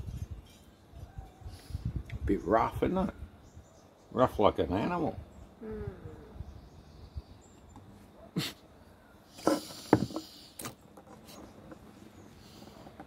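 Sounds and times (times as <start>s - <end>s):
glass set down on wood: 9.4s - 10.3s.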